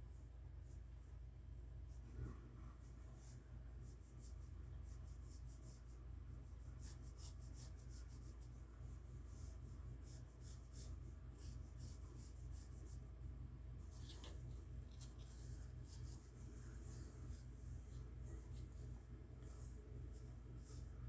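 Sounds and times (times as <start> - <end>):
steady low hum: 0.0 - 21.0
pencil scratching on paper: 13.8 - 21.0.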